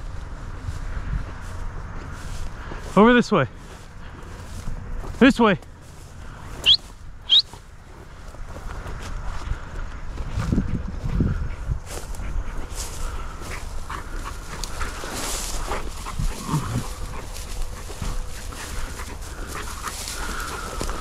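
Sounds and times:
dry grass rustling: 0.0 - 21.0
dog panting and sniffing: 10.2 - 21.0.

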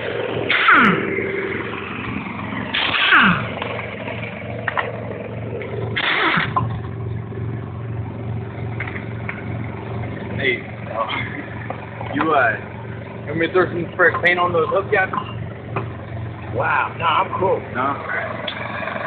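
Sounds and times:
impact wrench bursts: 2.7 - 3.4, 6.0 - 6.7.

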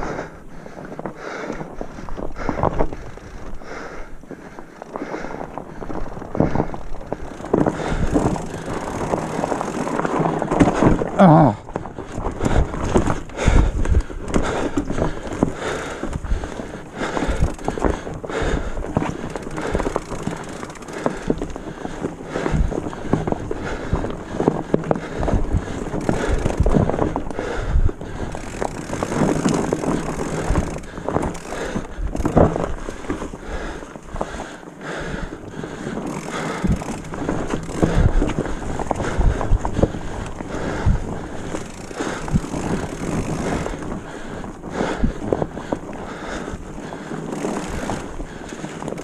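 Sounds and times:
bike knocking and rattling: 0.0 - 49.0.

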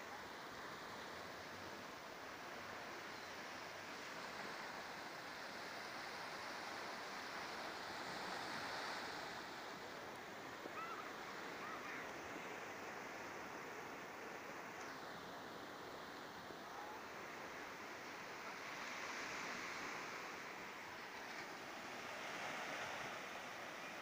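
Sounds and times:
waves breaking on sandy beach: 0.0 - 24.0.

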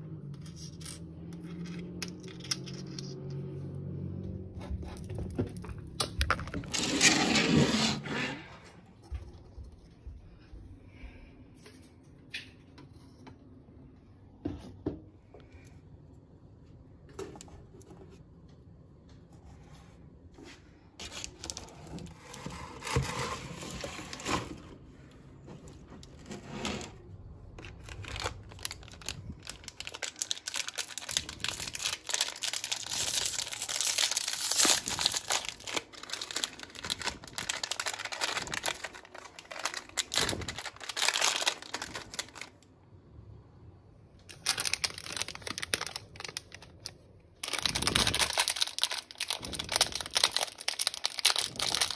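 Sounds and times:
plastic wrapper crinkling: 21.0 - 23.0, 27.6 - 42.6, 44.3 - 51.9.

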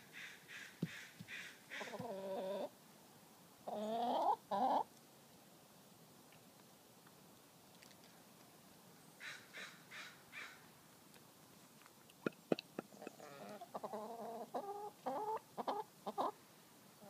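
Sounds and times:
hens clucking: 0.8 - 2.7, 3.6 - 4.9, 12.2 - 16.4.

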